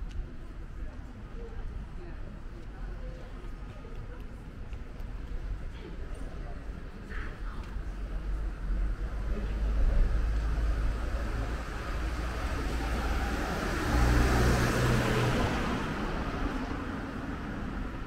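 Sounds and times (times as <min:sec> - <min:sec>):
car passing: 0:09.4 - 0:18.0.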